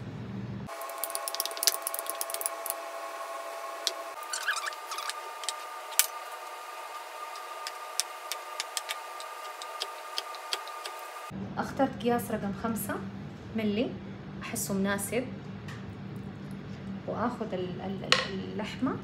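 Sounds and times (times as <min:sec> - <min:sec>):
cutting wheel on dough: 0:03.8 - 0:11.3.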